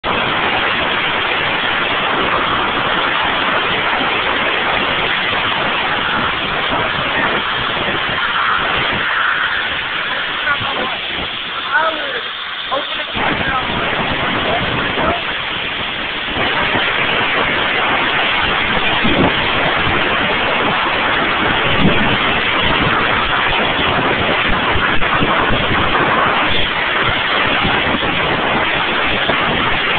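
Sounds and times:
air hose hissing: 0:05.6 - 0:16.8.

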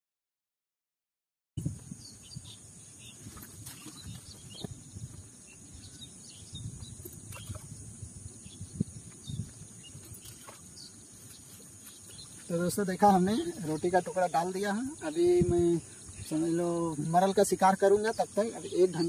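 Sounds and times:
wind rumble on microphone: 0:01.6 - 0:14.0, 0:14.6 - 0:18.2
faint chirps and ticks: 0:01.8 - 0:19.0.

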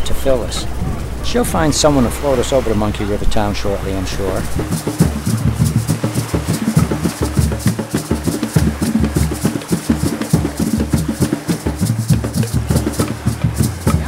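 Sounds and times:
bass and drums beat: 0:04.5 - 0:14.0
light percussion ticking: 0:04.6 - 0:14.0.

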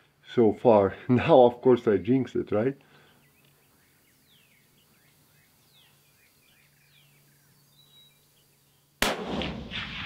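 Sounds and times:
songbird whistles and chirps: 0:03.0 - 0:09.0.

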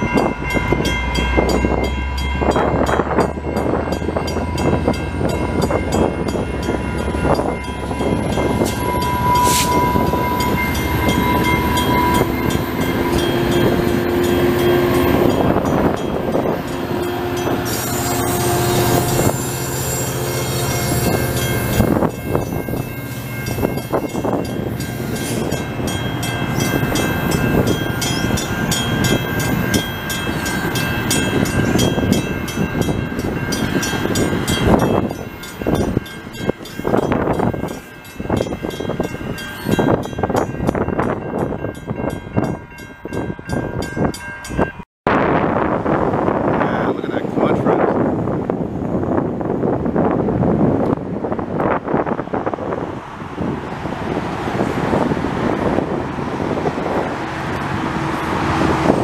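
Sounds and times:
train passing: 0:00.0 - 0:59.0.

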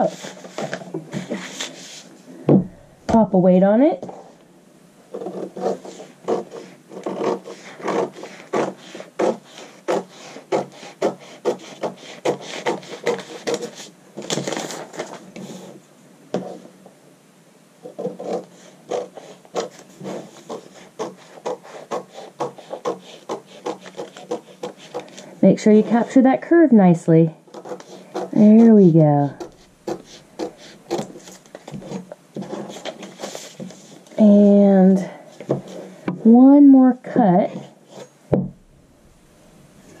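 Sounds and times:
paper rustling: 0:00.0 - 0:02.2, 0:12.2 - 0:15.8, 0:22.5 - 0:25.3, 0:27.6 - 0:34.2
scissors cutting paper: 0:05.2 - 0:15.2, 0:18.0 - 0:25.2, 0:27.5 - 0:28.8.

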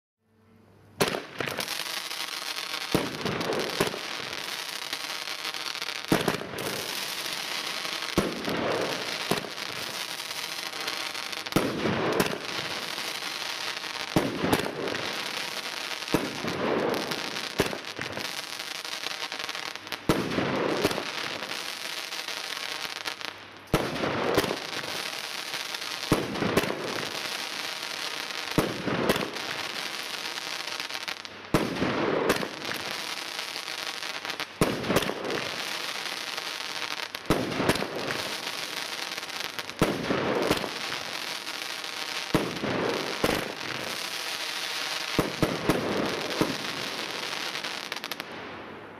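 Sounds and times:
fireworks bangs: 0:01.0 - 0:48.9
fireworks crackling: 0:01.0 - 0:48.9.

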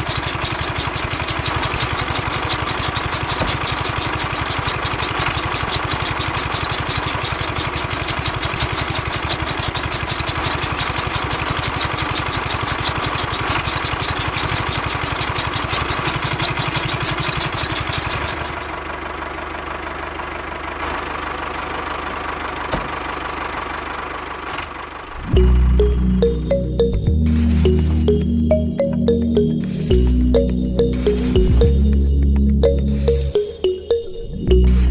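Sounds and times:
blades chopping grass clatter: 0:07.8 - 0:12.8.

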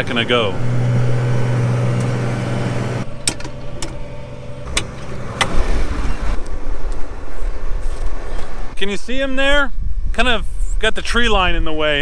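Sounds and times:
tractor diesel engine running: 0:00.0 - 0:08.0
cab door clicking open: 0:01.9 - 0:02.3, 0:03.1 - 0:05.7
wind rumbling on microphone: 0:05.1 - 0:12.0.

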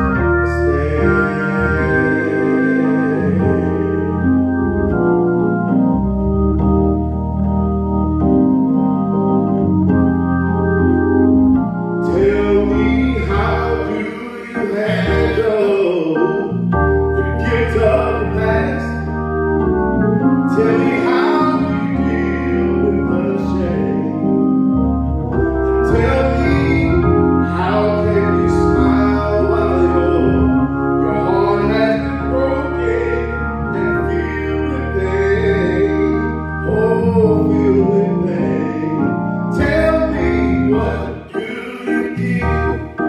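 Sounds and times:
person singing: 0:00.0 - 0:04.3, 0:12.1 - 0:16.6, 0:20.5 - 0:24.3, 0:25.9 - 0:43.0
organ sustained chords: 0:00.0 - 0:43.0.

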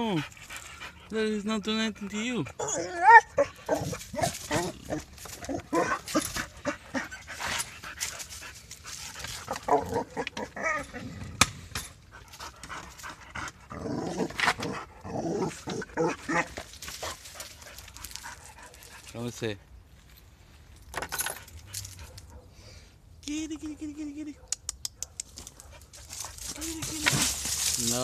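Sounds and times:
dog whining: 0:02.5 - 0:07.7, 0:09.5 - 0:11.2
rustling: 0:03.6 - 0:13.1, 0:15.5 - 0:22.4, 0:25.3 - 0:28.0.

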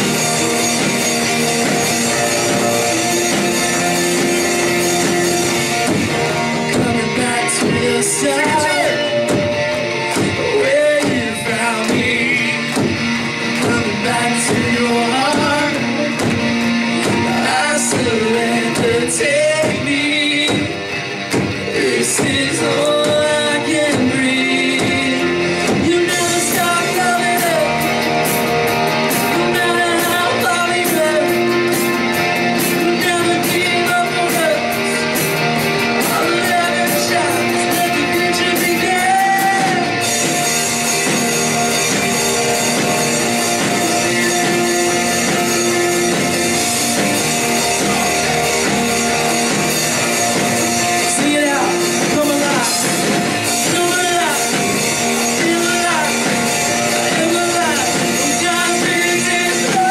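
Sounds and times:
person singing: 0:00.0 - 0:20.9, 0:21.6 - 0:40.5, 0:42.3 - 0:59.9
rock band playing: 0:00.0 - 0:59.9.

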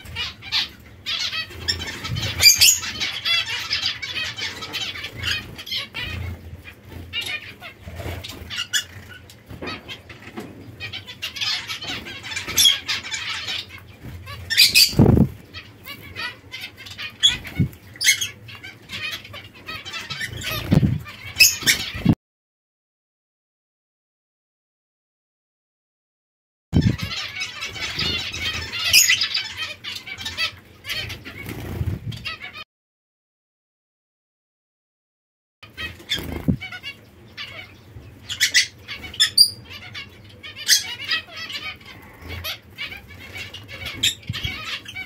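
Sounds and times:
wings fluttering: 0:00.0 - 0:18.4, 0:19.9 - 0:22.2, 0:30.9 - 0:32.4, 0:35.7 - 0:36.9
finches calling: 0:00.1 - 0:22.2, 0:35.8 - 0:45.0.

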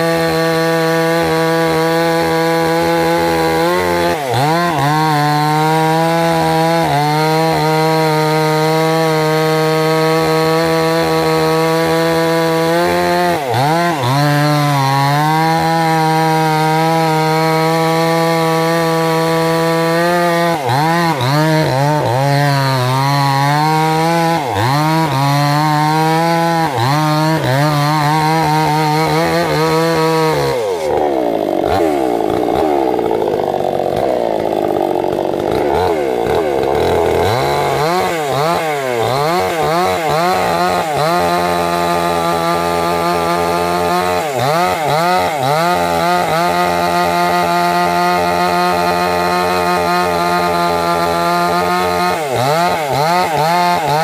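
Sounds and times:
chainsaw cutting wood: 0:00.0 - 0:54.0.

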